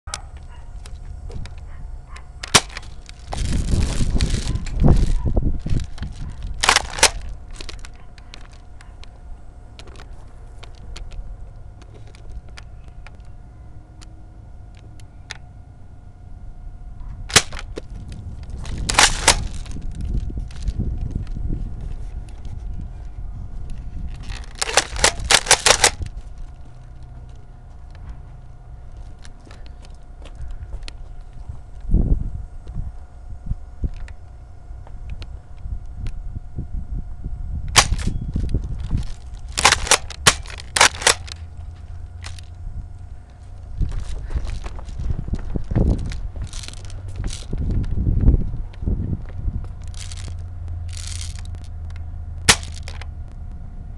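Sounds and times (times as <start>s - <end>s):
airsoft guns firing: 2.4s - 3.0s, 6.6s - 7.2s, 17.3s - 17.6s, 18.8s - 19.6s, 24.6s - 26.0s, 39.6s - 41.3s, 52.5s - 53.0s.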